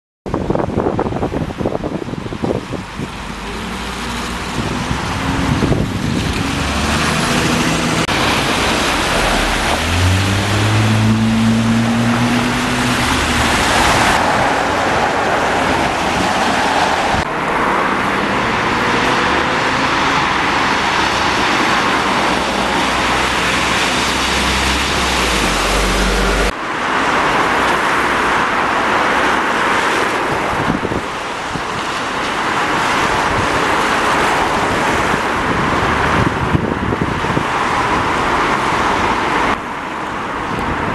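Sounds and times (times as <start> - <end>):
wind: 0.2 - 40.9
traffic: 0.3 - 40.9
bus diesel engine accelerating: 1.5 - 26.6.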